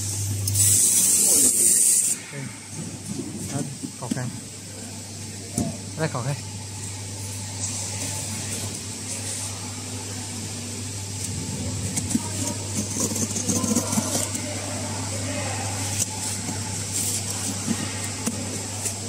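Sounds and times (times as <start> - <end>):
low machine hum: 0.0 - 19.0.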